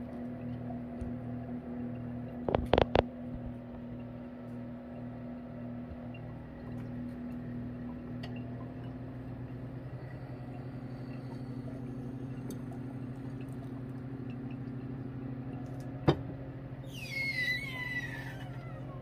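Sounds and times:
electric pump humming: 0.0s - 19.0s
filter funnel whistling squeal: 9.8s - 13.0s, 16.8s - 19.0s.

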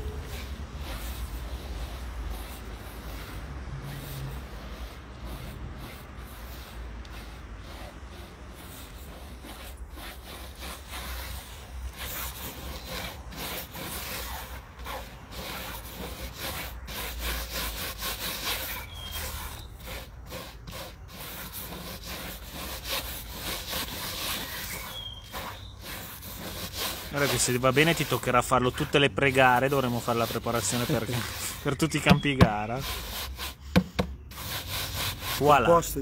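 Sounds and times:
soil scraping against wire mesh: 18.4s - 33.0s.

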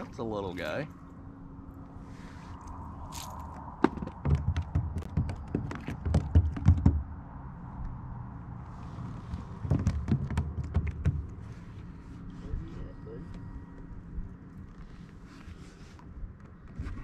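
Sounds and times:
fishing gear knocking on kayak: 3.8s - 7.0s, 9.6s - 11.4s.

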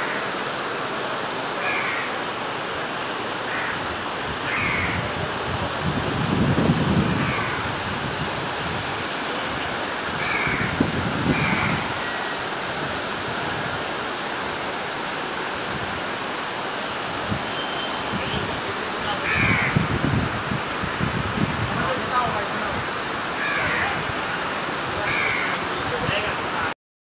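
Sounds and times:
heavy rain and floodwater rushing: 0.0s - 26.8s
crows cawing: 1.6s - 2.2s, 3.5s - 5.0s, 7.2s - 7.7s, 10.2s - 12.2s, 19.2s - 19.9s, 23.4s - 24.1s, 25.0s - 25.7s.

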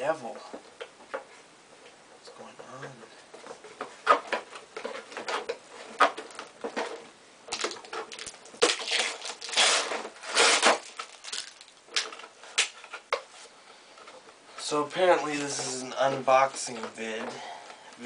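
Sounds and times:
packing paper and plastic rustling: 3.4s - 17.2s.

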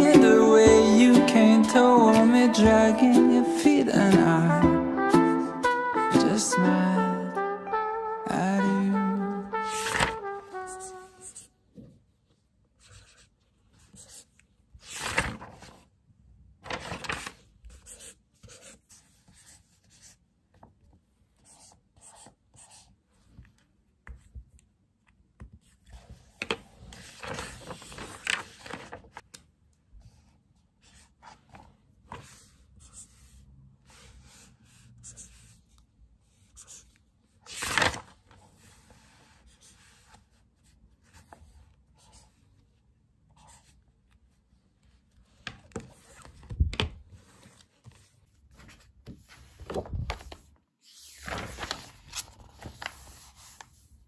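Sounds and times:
paper rustling: 9.1s - 11.4s, 14.8s - 15.9s, 16.6s - 17.8s, 25.6s - 29.4s, 37.4s - 40.2s, 45.3s - 53.9s
pen scratching on paper: 9.7s - 11.5s, 21.4s - 22.9s.

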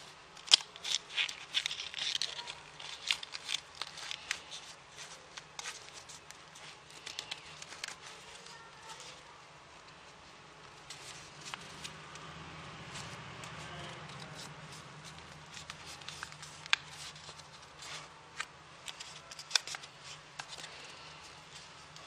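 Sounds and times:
paper rustling and crackling: 0.0s - 22.0s.

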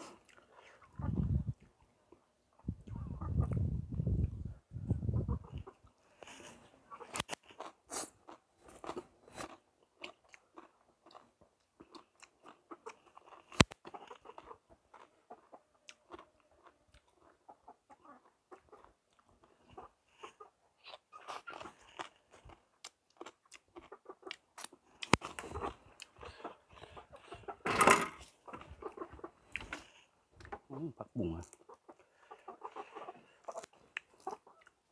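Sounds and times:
man chewing and crunching: 0.0s - 4.3s, 5.6s - 27.6s, 28.2s - 30.7s, 31.3s - 34.9s
mouth clicks and smacks: 0.1s - 4.4s.

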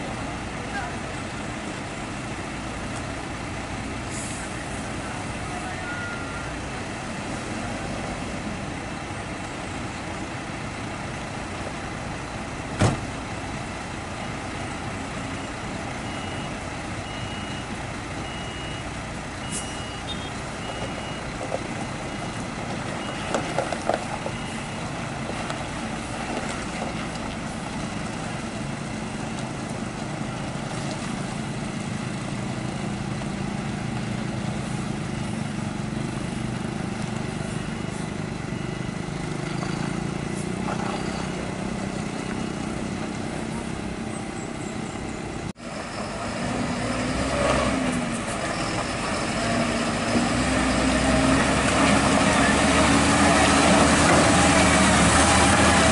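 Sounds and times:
diesel truck engines running: 0.0s - 55.9s
faint beeps: 15.3s - 23.4s, 37.7s - 40.1s.

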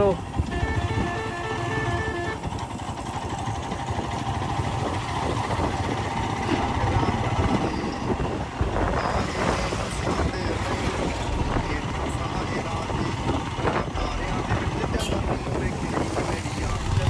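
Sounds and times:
motorcycle engine running: 0.2s - 9.2s, 9.9s - 17.0s.

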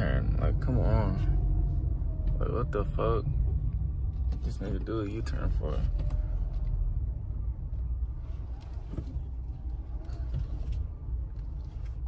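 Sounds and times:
car engine rumble inside cabin: 0.0s - 12.0s.

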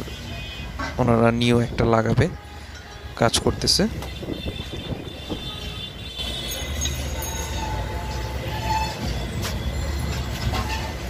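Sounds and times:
hand tools clinking: 6.3s - 8.3s
faint high squeals: 6.3s - 11.0s.

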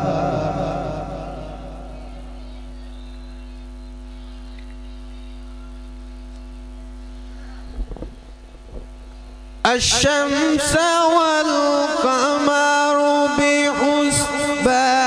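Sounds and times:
echo of man's voice: 0.0s - 2.0s, 9.6s - 15.0s
electrical mains hum: 0.0s - 15.0s.

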